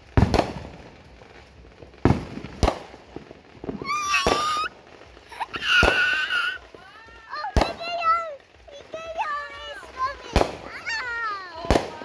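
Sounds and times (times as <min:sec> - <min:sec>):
fireworks bangs: 0:00.0 - 0:12.0
child squealing: 0:03.8 - 0:08.2.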